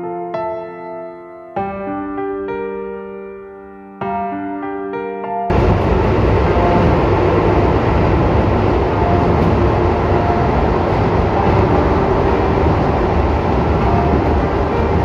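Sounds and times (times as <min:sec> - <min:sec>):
train wheels rumbling on rails: 0:05.5 - 0:15.0.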